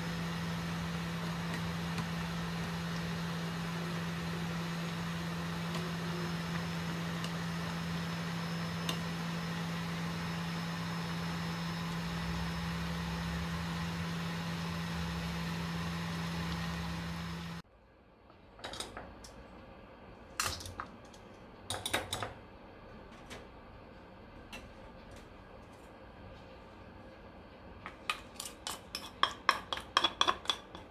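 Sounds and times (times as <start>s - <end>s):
stovetop hum and hiss: 0.0s - 30.9s
clinks on a steel bowl: 28.4s - 30.9s.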